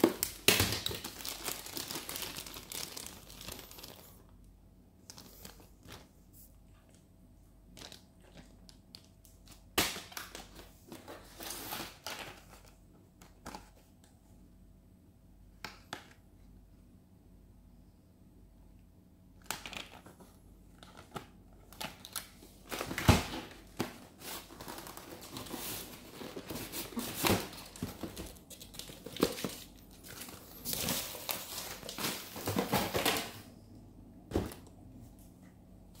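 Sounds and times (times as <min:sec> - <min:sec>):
packaging crinkling and rustling: 0:00.0 - 0:04.3, 0:19.4 - 0:33.4.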